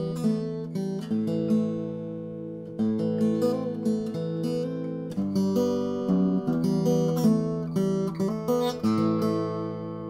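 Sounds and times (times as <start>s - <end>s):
acoustic guitar plucking: 0.0s - 10.0s.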